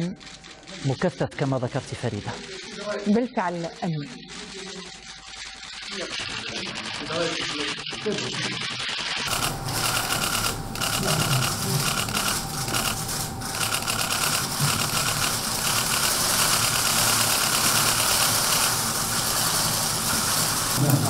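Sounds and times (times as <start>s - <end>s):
camera shutters clicking rapidly: 4.3s - 20.8s.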